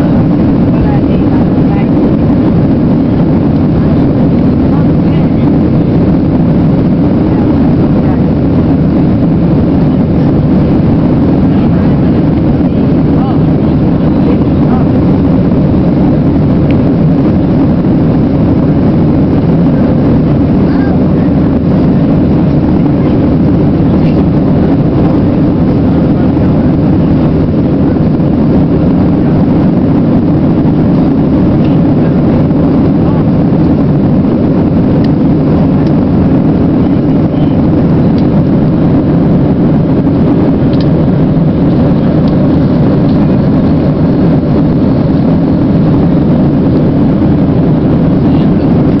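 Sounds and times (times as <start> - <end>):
airliner cabin engine rumble: 0.0 - 49.0.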